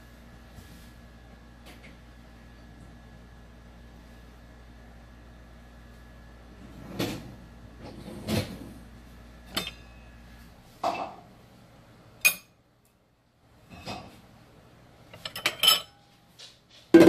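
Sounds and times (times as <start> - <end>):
low steady hum: 0.0 - 17.0
dishes clinking: 9.5 - 10.0, 10.8 - 11.3, 12.2 - 12.6, 15.2 - 16.1.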